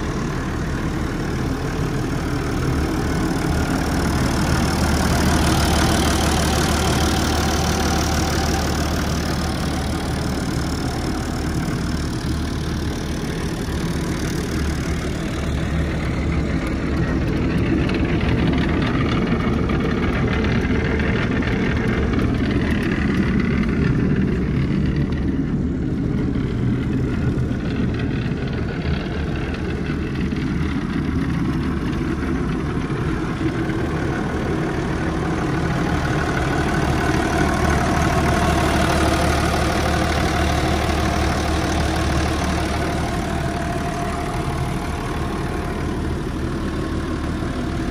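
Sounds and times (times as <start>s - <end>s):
tractor diesel engine idling: 0.0s - 47.9s.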